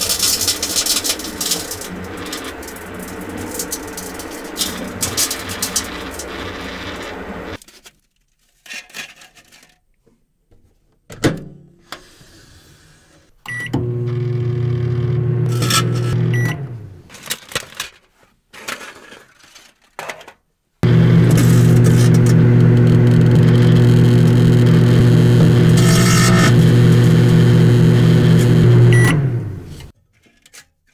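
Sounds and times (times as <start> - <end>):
crackles and snaps of arcing: 0.0 - 7.6
microwave oven humming: 0.6 - 7.6, 13.5 - 17.0, 20.8 - 29.9
microwave beep: 13.5 - 16.8, 20.8 - 29.6.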